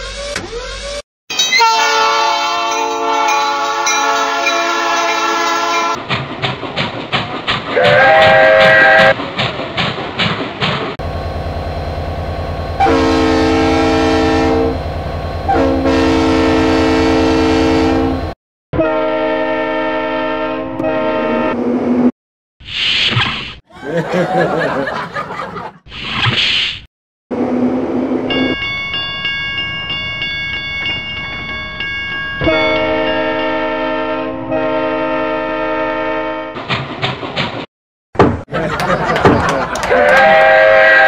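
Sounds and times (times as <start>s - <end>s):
train horn blasts: 1.6s - 6.0s, 7.8s - 9.2s, 11.1s - 21.6s, 32.4s - 36.6s, 39.9s - 41.0s
rail clickety-clack: 2.6s - 11.4s, 36.6s - 37.7s, 38.6s - 40.3s
low engine rumble: 11.0s - 13.0s.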